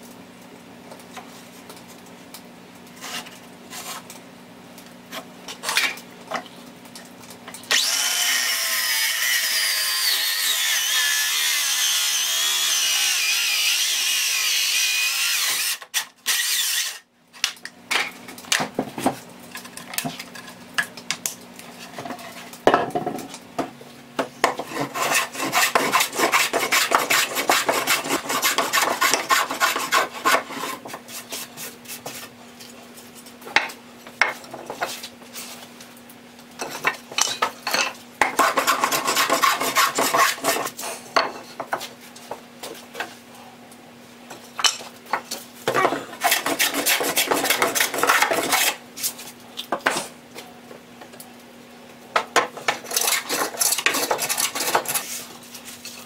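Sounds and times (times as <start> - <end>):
power saw cutting a board: 7.7 - 17.0, 24.6 - 30.8, 38.4 - 40.8
rapid scraping strokes on wood: 24.5 - 32.3, 38.3 - 41.0, 46.2 - 49.2, 52.7 - 55.9.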